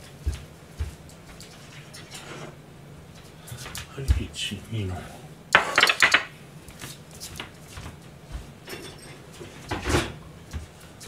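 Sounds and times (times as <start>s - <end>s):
plates clattering on steel counter: 5.6s - 6.3s, 8.7s - 10.2s.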